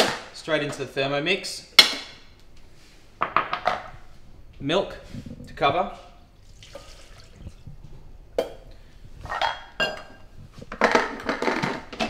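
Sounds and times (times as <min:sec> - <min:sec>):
milk pouring from a jug: 0:06.4 - 0:07.7.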